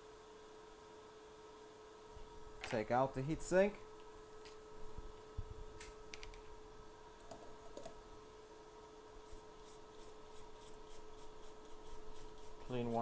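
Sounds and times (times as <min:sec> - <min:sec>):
faint electrical hum: 0:00.0 - 0:13.0
small clicks and taps of tools: 0:05.8 - 0:06.4.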